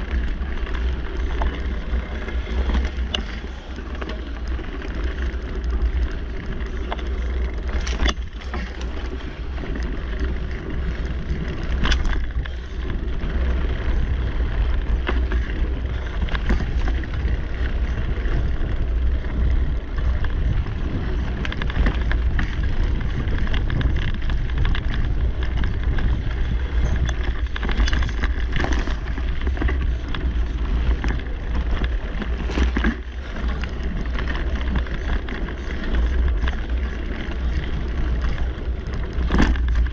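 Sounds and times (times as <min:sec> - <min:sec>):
bike knocks and rattles: 0:00.0 - 0:39.9
bike tyres on dirt trail: 0:00.0 - 0:39.9
wind rumble on microphone: 0:00.0 - 0:39.9.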